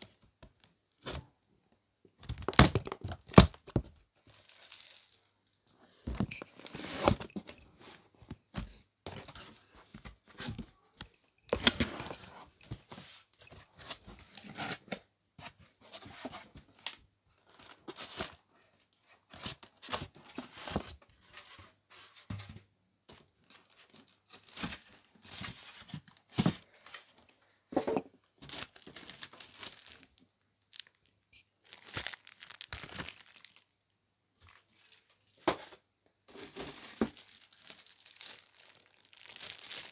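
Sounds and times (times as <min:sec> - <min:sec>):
plastic wrapping crinkling: 0:02.2 - 0:05.6, 0:28.4 - 0:33.8, 0:36.3 - 0:39.9.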